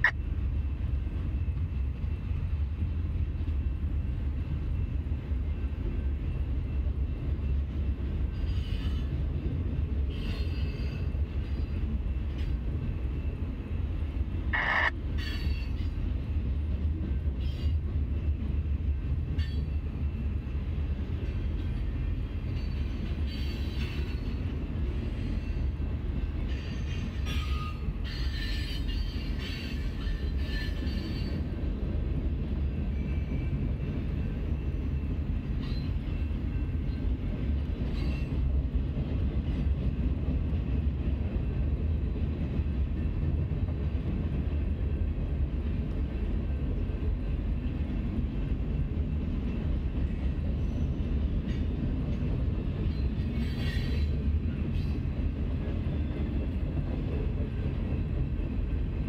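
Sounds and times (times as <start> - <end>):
freight train rumbling: 0.0 - 59.0
high squeal of train wheels: 3.6 - 16.4, 17.0 - 31.9, 32.5 - 38.8, 48.4 - 59.0.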